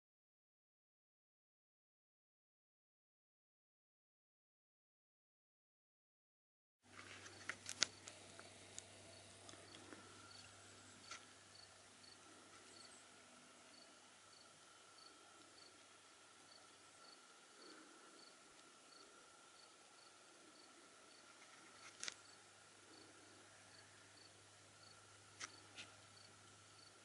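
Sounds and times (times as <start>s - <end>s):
faint high whine: 6.9s - 27.0s
insect chirping: 7.3s - 27.0s.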